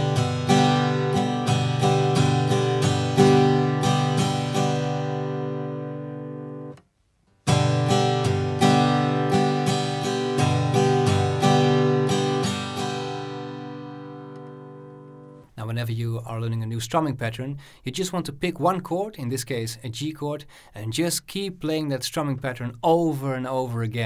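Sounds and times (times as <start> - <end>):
acoustic guitar strumming: 0.0 - 15.5.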